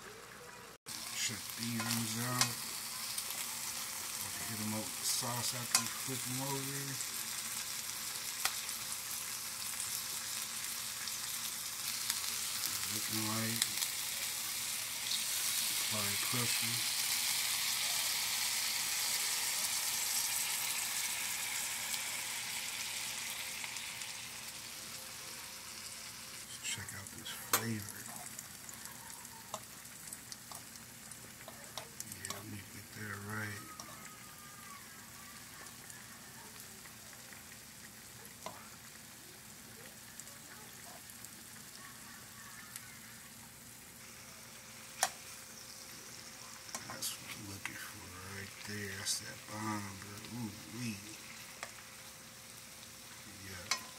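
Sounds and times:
meat sizzling in a skillet: 0:00.0 - 0:53.9
fork stirring vegetables: 0:31.4 - 0:32.5, 0:53.6 - 0:53.9
metal utensil clicking on pan: 0:53.6 - 0:53.9.

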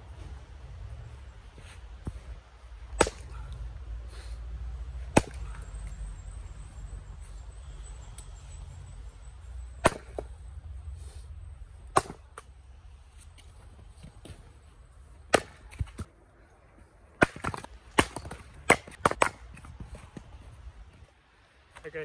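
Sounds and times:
axe splitting firewood: 0:02.9 - 0:03.4, 0:05.0 - 0:05.6, 0:09.8 - 0:10.3, 0:11.9 - 0:12.5, 0:15.3 - 0:16.1, 0:17.1 - 0:19.8.

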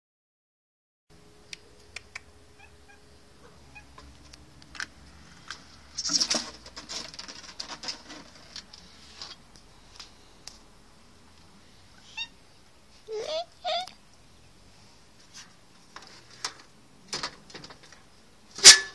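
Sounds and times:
scratchy rustling: 0:05.9 - 0:09.4.

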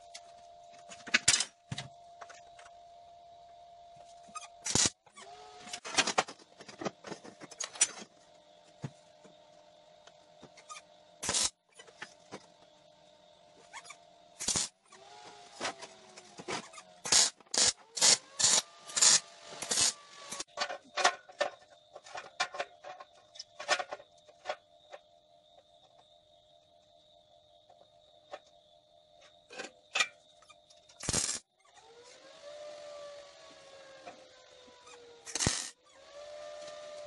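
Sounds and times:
crackling welding bursts: 0:04.6 - 0:05.0, 0:11.2 - 0:11.6, 0:14.4 - 0:14.8, 0:17.0 - 0:20.5, 0:31.0 - 0:31.4, 0:35.3 - 0:35.8.

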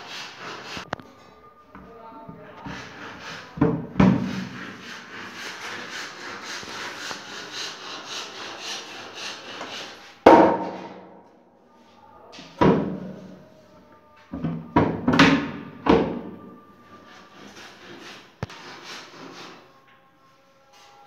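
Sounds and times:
rhythmic rubbing on wood: 0:00.0 - 0:00.9, 0:02.6 - 0:10.9, 0:16.9 - 0:19.7
knocks on wooden cabinet door: 0:10.3 - 0:10.9
cabinet door banging: 0:10.3 - 0:11.0.

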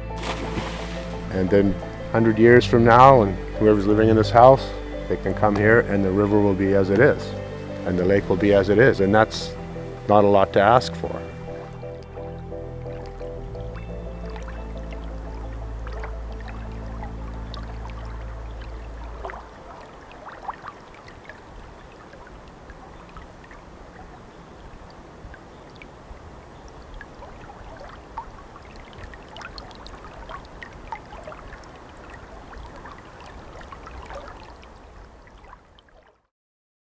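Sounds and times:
held music chord: 0:00.0 - 0:20.2
water trickling and gurgling: 0:00.0 - 0:36.3.

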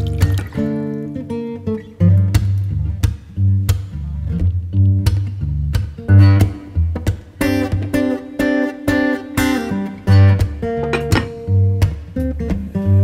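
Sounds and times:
low bass notes: 0:00.0 - 0:00.8, 0:01.9 - 0:07.8
plucked acoustic guitar: 0:00.0 - 0:13.0.

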